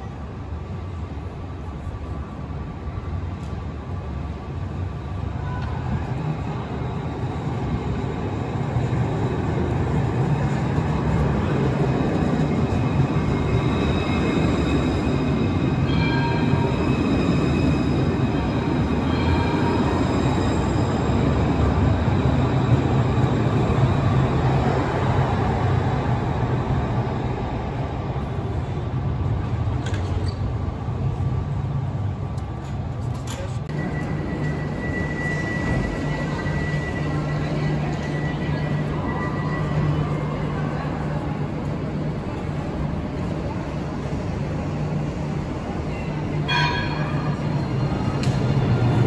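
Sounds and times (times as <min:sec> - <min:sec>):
tram rolling rumble: 0:00.0 - 0:49.0
wheels squealing on rails: 0:04.8 - 0:25.6, 0:33.3 - 0:49.0.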